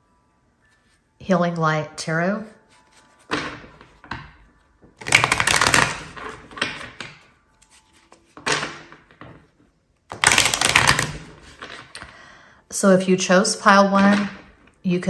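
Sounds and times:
cards being shuffled: 2.6s - 4.0s, 5.0s - 9.1s, 10.1s - 12.1s.

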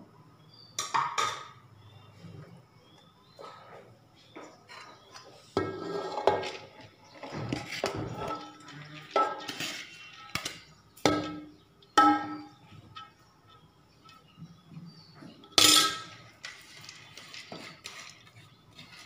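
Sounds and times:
metal spoon clanking on pot: 5.6s - 14.3s, 15.4s - 18.1s.

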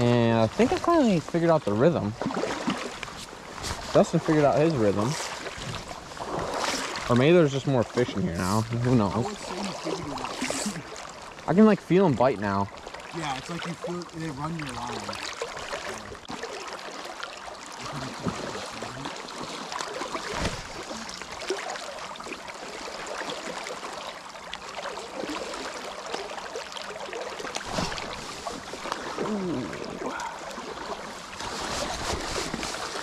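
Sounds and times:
river current rushing: 0.0s - 12.0s.

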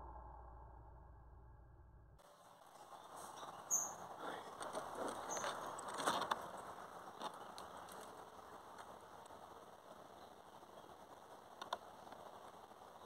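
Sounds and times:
small bird chirping: 2.8s - 4.1s, 5.1s - 5.8s.

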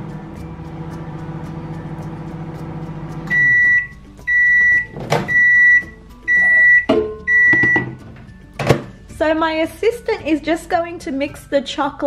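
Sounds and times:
microwave oven humming: 0.0s - 7.8s
high microwave beeps: 3.3s - 8.0s.

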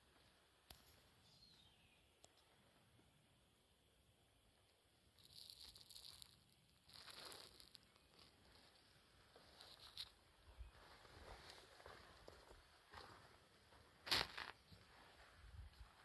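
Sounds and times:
footsteps crunching on dry trail: 6.9s - 16.0s.

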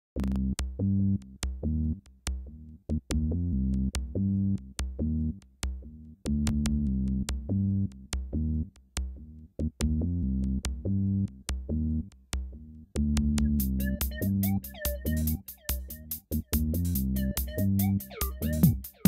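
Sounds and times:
drum machine beat: 0.2s - 19.0s
synthesizer notes: 13.4s - 16.0s, 17.2s - 19.0s.

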